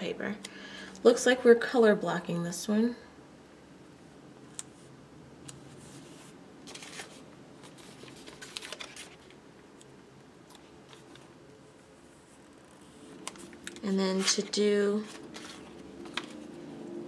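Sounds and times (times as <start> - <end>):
sticker sheet rustling: 12.4 - 16.6.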